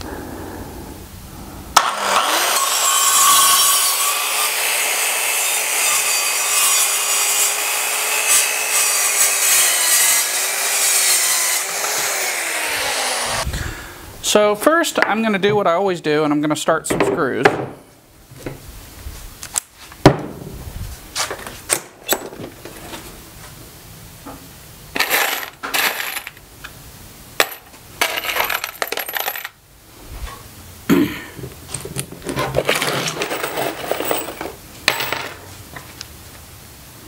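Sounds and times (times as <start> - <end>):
metal screws clinking and rattling: 25.0 - 26.4, 27.4 - 29.6, 31.7 - 35.4.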